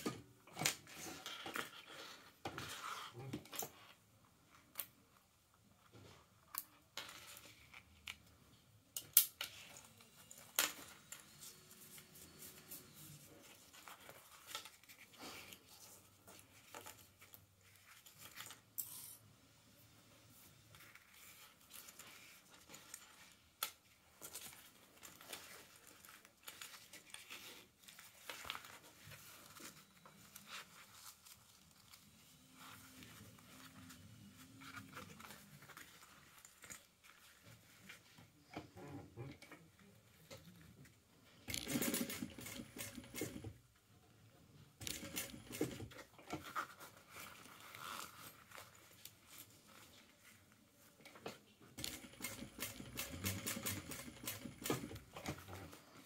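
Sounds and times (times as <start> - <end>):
metal zipper: 47.5 - 48.4.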